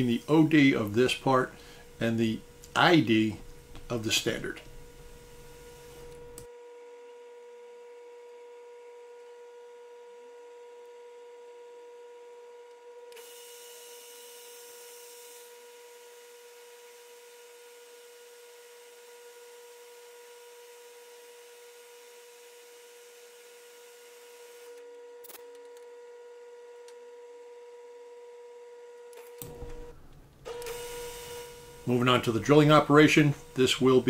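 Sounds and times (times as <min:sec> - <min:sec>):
metal lathe humming: 0:00.0 - 0:06.4, 0:29.4 - 0:34.0
light cutting hiss: 0:00.0 - 0:06.5, 0:29.4 - 0:34.0.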